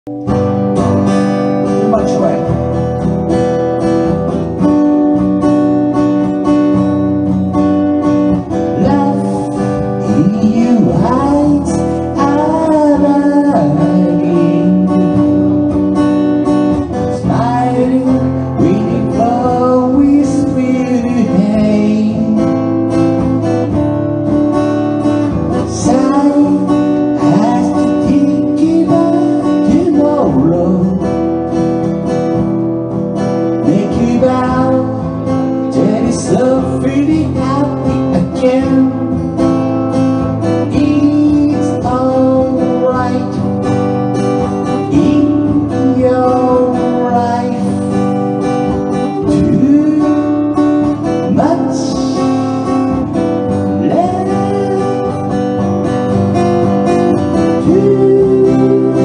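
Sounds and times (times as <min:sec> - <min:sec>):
acoustic guitar: 0:00.0 - 0:59.0
man singing: 0:01.1 - 0:02.9, 0:08.0 - 0:23.7, 0:25.0 - 0:32.0, 0:33.3 - 0:59.0.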